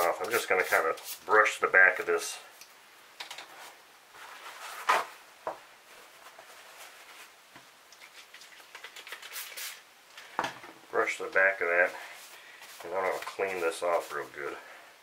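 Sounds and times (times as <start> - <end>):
paper towel rustling: 3.6 - 5.2, 5.8 - 7.5, 11.2 - 14.7.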